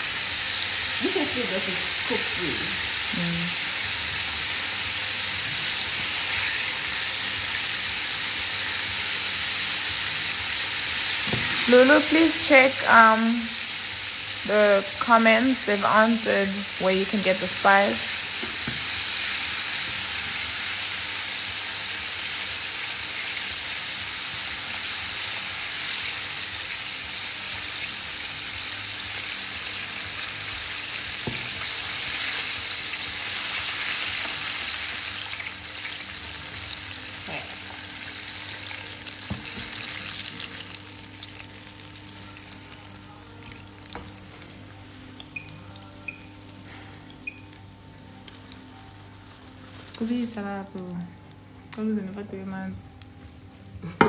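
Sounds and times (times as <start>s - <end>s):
chicken deep-frying in oil: 0.0s - 47.6s.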